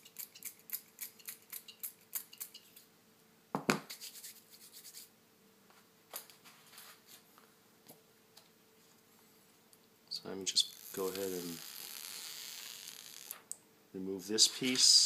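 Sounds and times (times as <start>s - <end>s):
scratchy rustling and handling: 6.2s - 7.5s.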